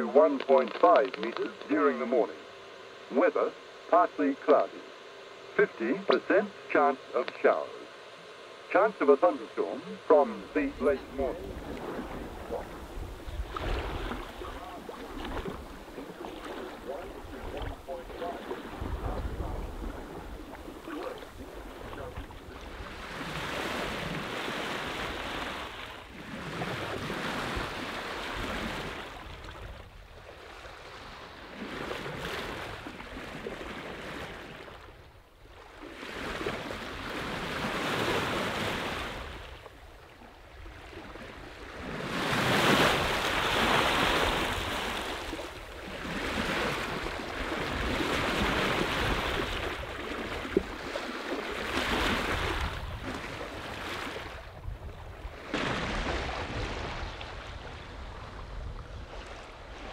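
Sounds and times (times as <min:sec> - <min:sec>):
water splashing along boat hull: 0:00.0 - 0:01.8, 0:09.6 - 0:59.9.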